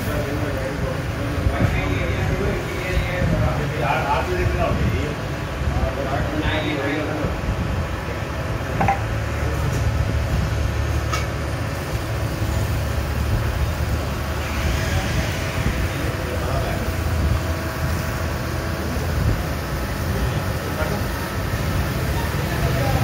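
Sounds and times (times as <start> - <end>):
coolant splashing hiss: 0.0 - 23.0
grinding machine hum: 0.0 - 23.0.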